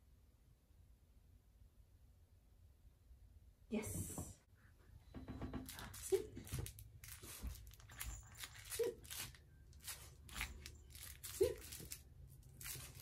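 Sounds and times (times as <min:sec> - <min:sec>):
plush toy rustling: 0:05.7 - 0:13.0.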